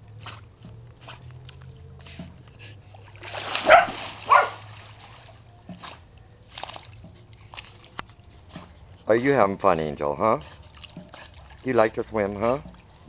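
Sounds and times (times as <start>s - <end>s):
dog paddling splashing water: 0.0s - 13.0s
loud splashing flurry: 3.0s - 5.4s.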